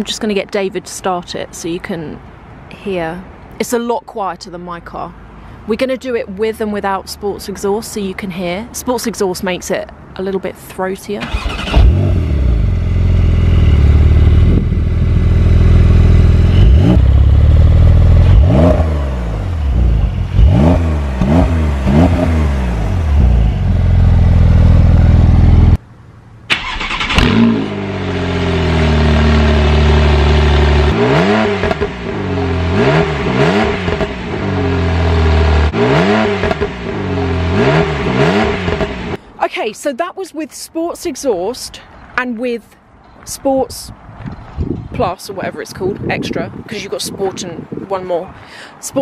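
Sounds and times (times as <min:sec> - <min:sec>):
second car revving: 0:11.3 - 0:25.8, 0:26.6 - 0:39.2
sports car engine revving: 0:11.3 - 0:25.8, 0:26.7 - 0:39.2.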